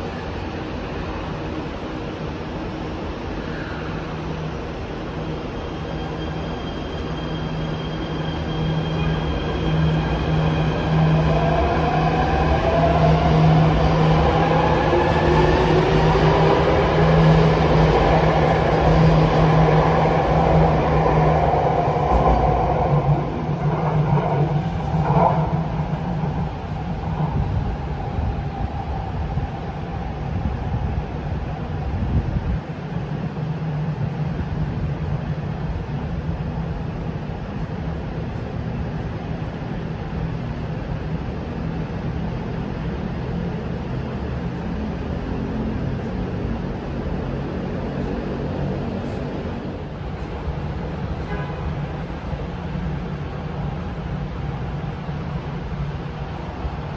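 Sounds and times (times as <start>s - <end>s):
electric train rumbling: 0.0s - 56.9s.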